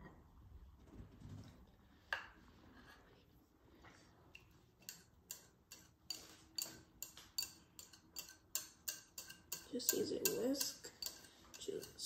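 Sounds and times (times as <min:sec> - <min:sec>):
whisk scraping ceramic bowl: 0:04.8 - 0:12.0.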